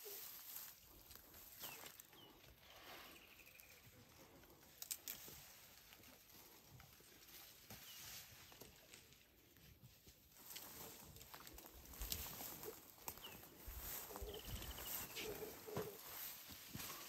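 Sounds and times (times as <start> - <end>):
leaves and twigs rustling: 0.0 - 17.0
birds chirping: 1.3 - 4.6, 12.4 - 16.3.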